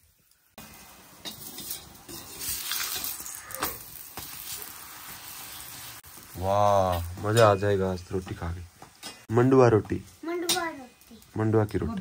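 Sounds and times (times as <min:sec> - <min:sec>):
ghee sizzling on a griddle: 0:00.0 - 0:12.0
metal ladle scraping and tapping: 0:01.2 - 0:03.1.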